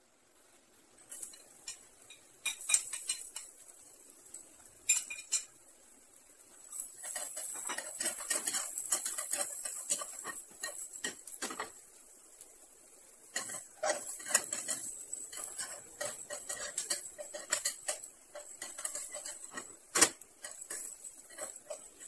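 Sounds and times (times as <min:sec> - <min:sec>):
onions sizzling in frying pan: 0:00.0 - 0:22.0
utensil scraping pan: 0:01.1 - 0:03.6, 0:06.6 - 0:11.9, 0:13.2 - 0:22.0.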